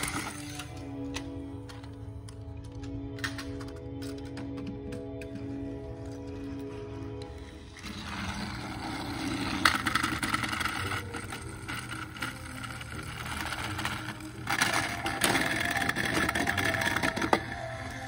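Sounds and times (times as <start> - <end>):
toy train motors whirring: 0.0 - 0.8, 7.4 - 18.0.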